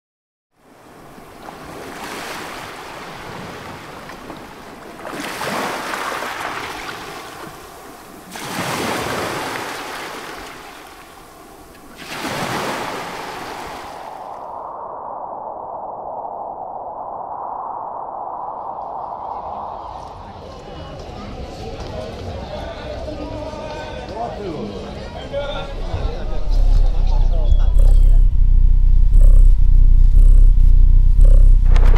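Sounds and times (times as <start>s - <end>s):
ocean waves washing in: 0.6s - 20.5s.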